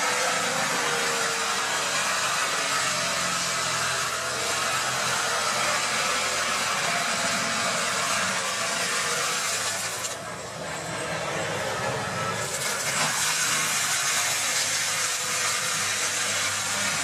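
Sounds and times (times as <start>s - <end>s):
mulcher rotor grinding wood: 0.0s - 17.0s
tractor engine: 0.0s - 17.0s.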